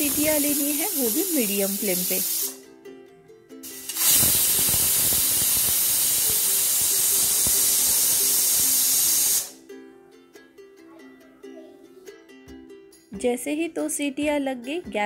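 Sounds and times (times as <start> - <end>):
pressure cooker steam hiss: 0.0 - 2.6, 3.6 - 9.6.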